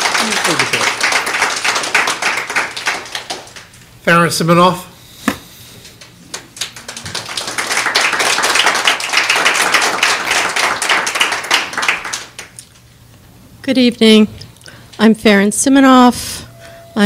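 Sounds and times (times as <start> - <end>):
audience applauding: 0.0 - 3.8, 6.3 - 12.6.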